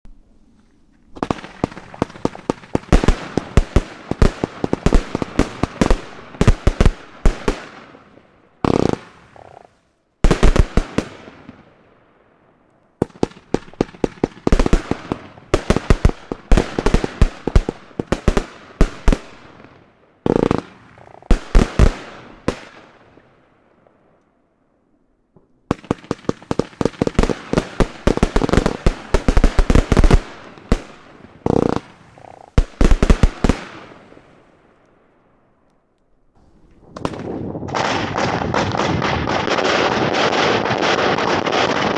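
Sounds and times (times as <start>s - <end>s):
firework battery shots and bursts: 1.2s - 9.4s, 10.2s - 11.7s, 13.0s - 23.2s, 25.7s - 34.6s, 36.4s - 41.9s.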